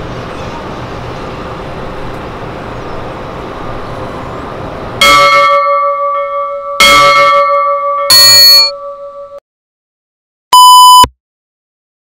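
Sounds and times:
ringing bell strikes: 5.0 - 9.4.

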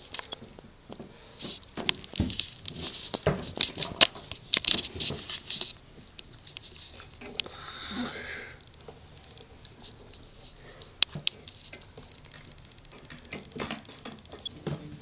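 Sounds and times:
handheld camera rustling: 1.4 - 7.4, 8.8 - 14.5.

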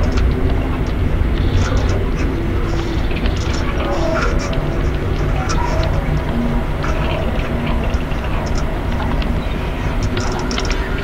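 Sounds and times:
low train-like rumble: 0.0 - 11.0
small clicks: 2.8 - 11.0.

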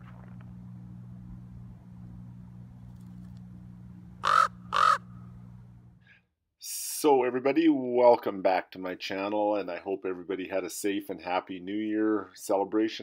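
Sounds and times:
steady low hum: 0.0 - 13.0
raven calling: 4.2 - 5.3.

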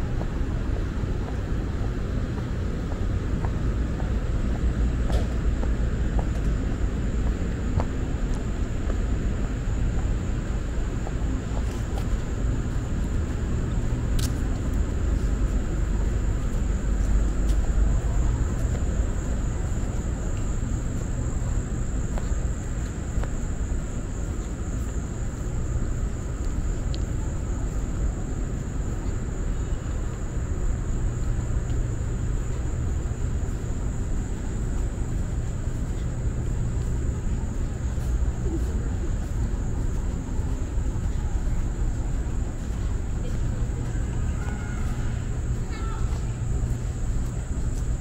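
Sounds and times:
insects trilling: 8.1 - 48.0.

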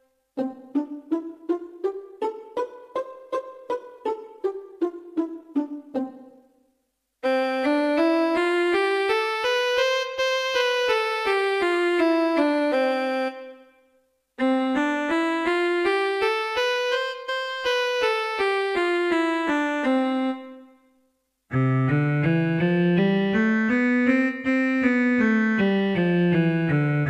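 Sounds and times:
keyboard playing a scale: 7.2 - 13.6, 14.4 - 20.6, 21.5 - 27.0.

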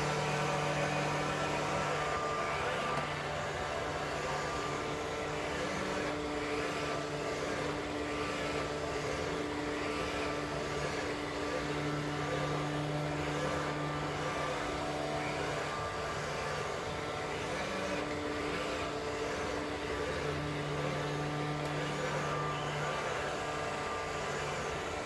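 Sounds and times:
robot vacuum cleaner whirring: 0.0 - 25.0.

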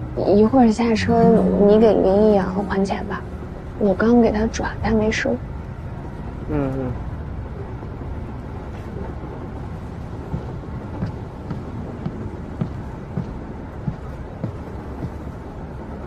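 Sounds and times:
train carriage rumble: 0.0 - 16.0
footsteps in aisle: 10.3 - 15.4.

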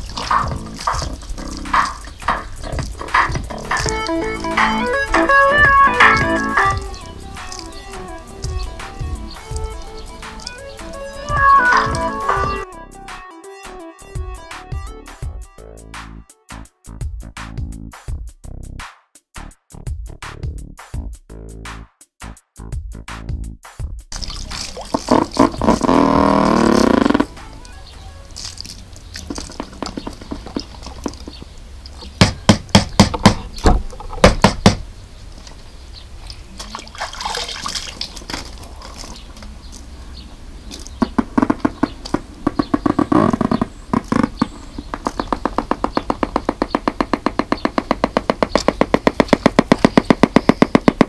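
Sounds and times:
knocks and clatters: 0.0 - 6.9, 28.5 - 34.8
music from speaker: 0.0 - 18.4, 25.1 - 28.1.

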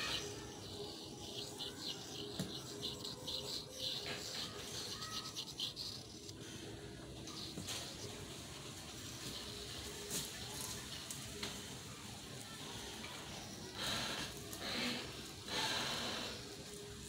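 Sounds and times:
metal spout scratching wood: 0.0 - 6.6, 7.2 - 10.4.

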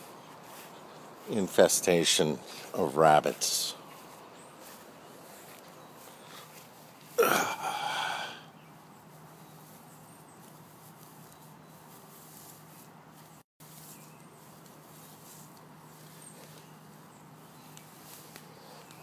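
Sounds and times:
faint outdoor background: 0.0 - 19.0
short breathy vocal sound: 7.2 - 8.5.

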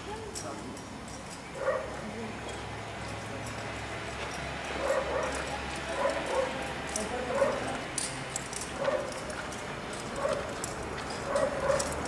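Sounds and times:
dog barking: 1.6 - 2.0, 4.8 - 6.6, 7.3 - 7.8, 8.8 - 9.2, 10.2 - 10.5, 11.3 - 12.0.

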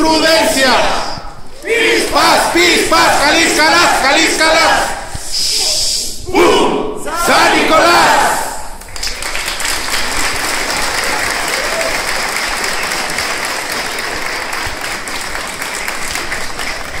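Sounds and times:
crowd applauding: 8.8 - 17.0.

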